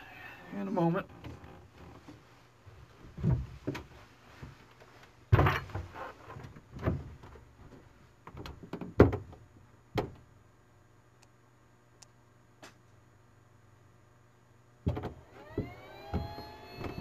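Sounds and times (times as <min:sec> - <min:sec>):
knocks and clunks: 0:03.0 - 0:04.6, 0:05.3 - 0:07.4, 0:08.2 - 0:09.4, 0:10.0 - 0:10.3, 0:14.8 - 0:17.0.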